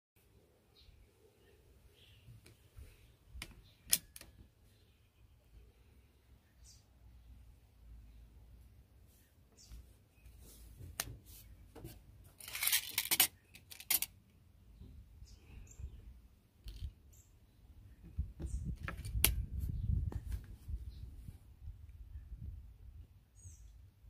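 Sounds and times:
plastic clicks and scrapes on metal: 0:03.4 - 0:04.4, 0:11.7 - 0:14.2.

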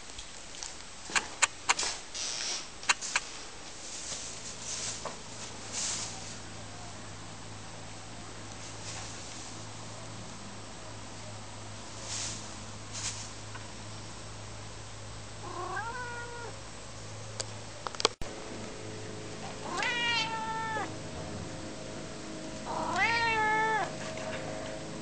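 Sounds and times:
sharp clicks: 0:01.1 - 0:01.9, 0:02.8 - 0:03.3
cat meowing: 0:15.4 - 0:16.6, 0:19.6 - 0:21.0, 0:22.6 - 0:24.0.

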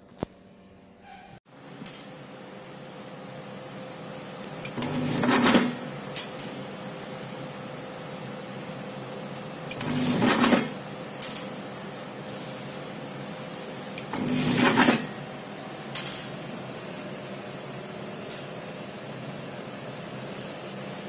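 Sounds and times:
taping machine motor whirr: 0:04.6 - 0:05.9, 0:09.7 - 0:10.8, 0:13.9 - 0:15.2
sharp machine click: 0:14.0 - 0:15.2.

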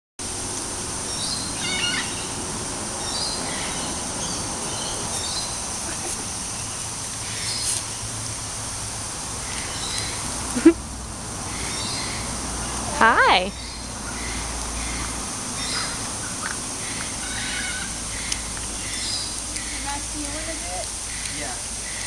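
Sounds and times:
steady high hiss: 0:00.2 - 0:22.0
bird chirps: 0:13.5 - 0:20.2.

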